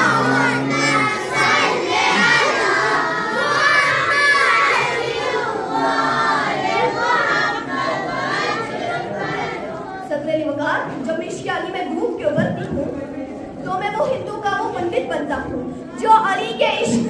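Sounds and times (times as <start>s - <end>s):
crowd shouting and chanting: 0.0s - 10.1s.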